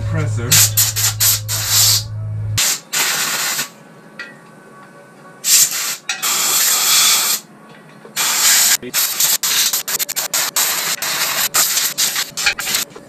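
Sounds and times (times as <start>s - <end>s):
air blow gun hissing bursts: 2.6s - 3.8s, 5.5s - 7.4s, 8.2s - 12.8s.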